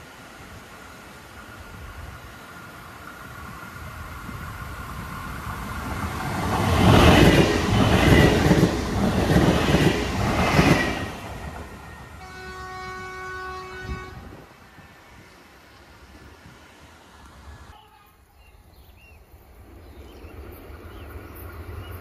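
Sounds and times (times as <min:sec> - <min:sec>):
train passing: 0:00.0 - 0:22.0
train horn blast: 0:11.9 - 0:14.5.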